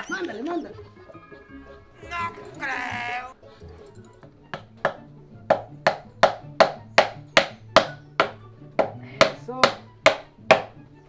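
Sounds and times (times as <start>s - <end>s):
background music: 0.0s - 11.0s
wooden mallet pounding wood: 4.5s - 10.8s.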